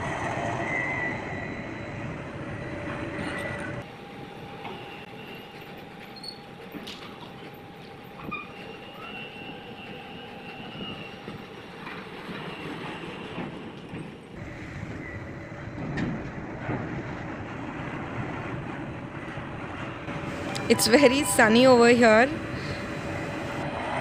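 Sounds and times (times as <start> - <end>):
crane machinery running: 0.0 - 11.8, 14.1 - 24.0
high metallic squeal: 0.6 - 3.8, 20.3 - 22.8.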